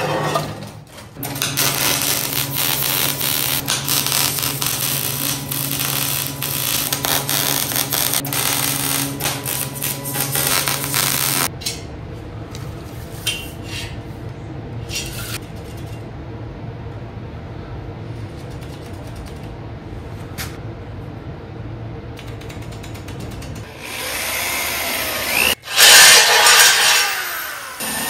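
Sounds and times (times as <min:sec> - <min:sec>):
electrical hum: 0:00.0 - 0:25.7
welder crackling and sizzling: 0:01.2 - 0:11.5.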